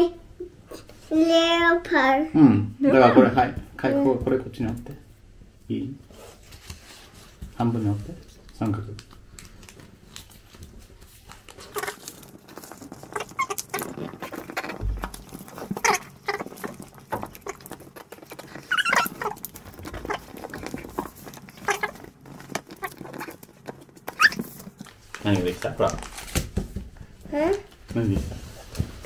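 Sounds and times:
paper rustling and folding: 0:06.1 - 0:29.0.

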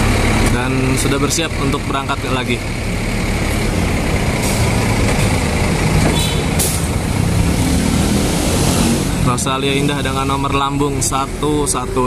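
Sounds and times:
bus diesel engine: 0:00.0 - 0:12.0.

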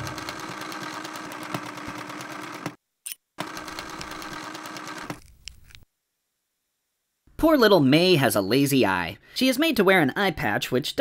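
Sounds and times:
sewing machine stitching: 0:00.0 - 0:02.8, 0:03.4 - 0:05.3.

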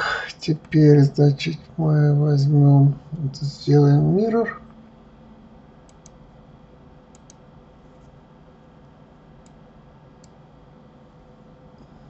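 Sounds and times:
faint steady hum: 0:00.0 - 0:12.0
computer mouse clicking: 0:05.9 - 0:06.2, 0:07.1 - 0:07.4, 0:09.4 - 0:09.6.

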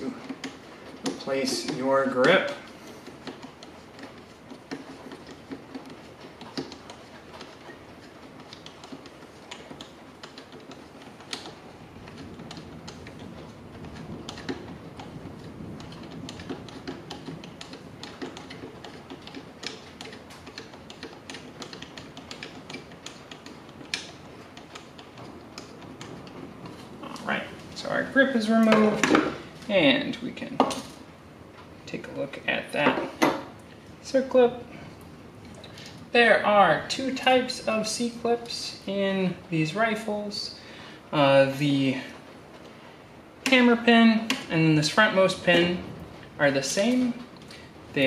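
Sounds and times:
screwdriver clicking on screw: 0:00.2 - 0:26.8.

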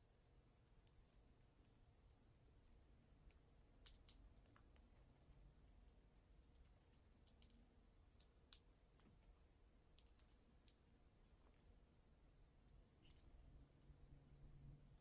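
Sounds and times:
parrot beaks clicking plastic toys: 0:03.8 - 0:04.9.

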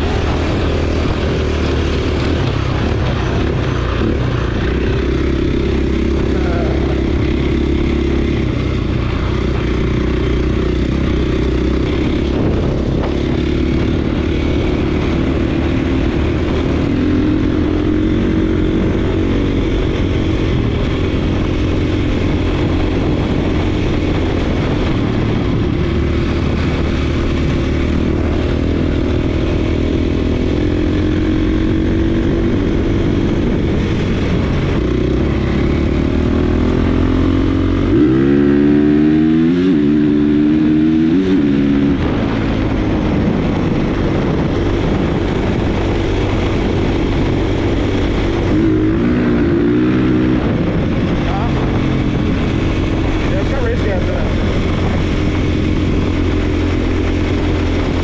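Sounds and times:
dirt bike engine running: 0:00.0 - 0:58.0.

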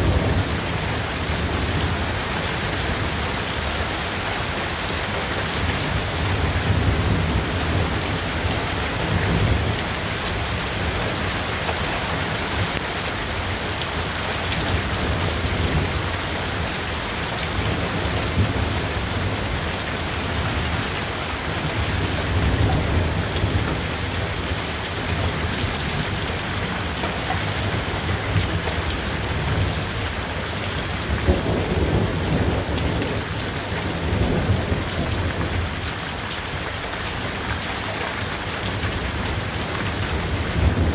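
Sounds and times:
low rolling thunder: 0:00.0 - 0:03.1, 0:17.3 - 0:35.9, 0:38.6 - 0:40.9.

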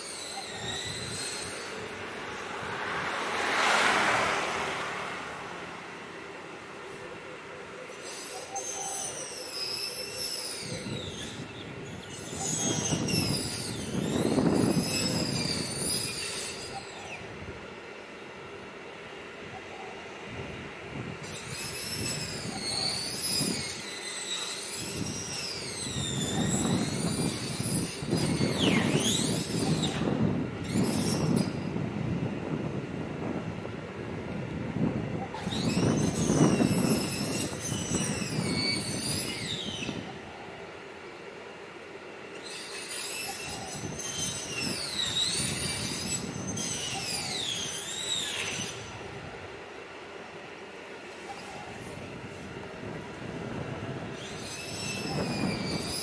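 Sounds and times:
high wavering squealing tones: 0:00.0 - 0:02.7, 0:07.8 - 0:17.3, 0:21.2 - 0:31.7, 0:35.2 - 0:40.6, 0:42.3 - 0:49.3, 0:53.6 - 0:56.0.

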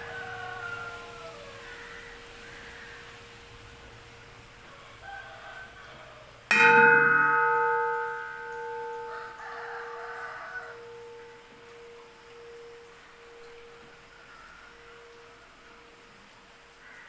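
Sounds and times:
bronze vessel clanging and ringing: 0:06.5 - 0:14.1.

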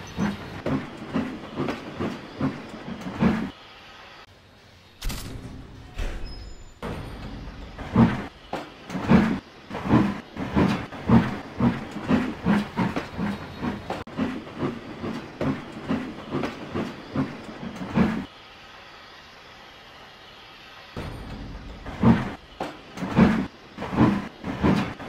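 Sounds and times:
steam locomotive chuffing: 0:00.0 - 0:04.3, 0:06.0 - 0:25.0.

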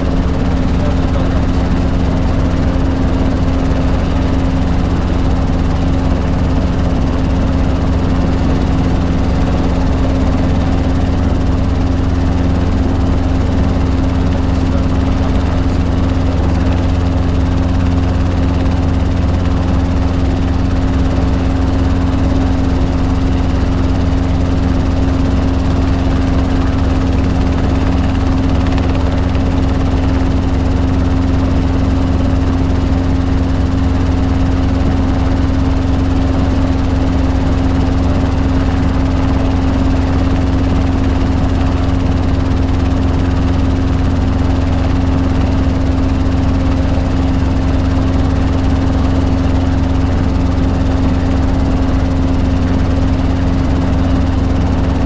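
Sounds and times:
helicopter engine drone: 0:00.0 - 0:55.0.

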